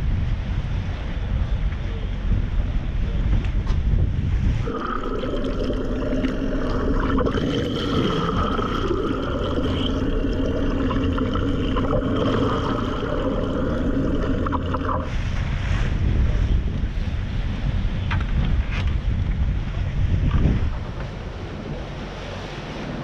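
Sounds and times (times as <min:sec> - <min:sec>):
waves: 0:00.0 - 0:23.0
wind buffeting microphone: 0:00.0 - 0:23.0
underwater water rushing: 0:04.6 - 0:16.0
steady humming tones: 0:04.6 - 0:23.0.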